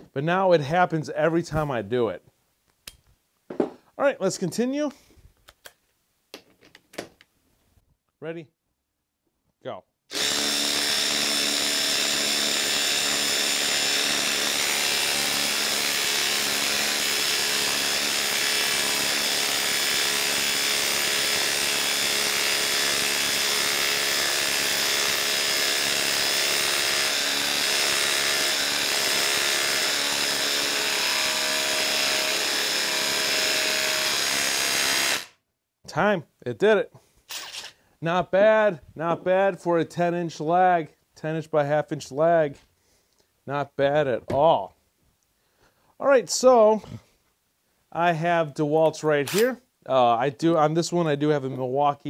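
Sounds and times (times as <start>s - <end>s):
impact driver hammering: 10.1s - 35.4s.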